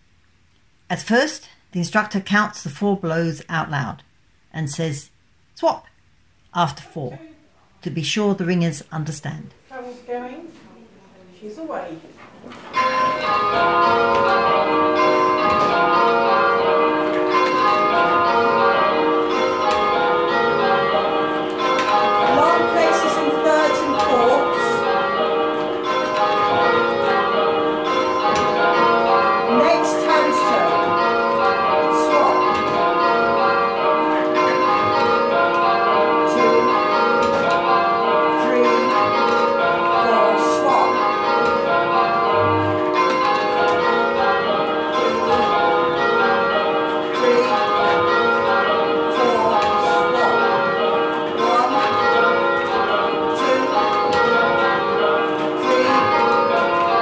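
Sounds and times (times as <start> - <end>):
church bells change ringing: 12.7 - 57.0.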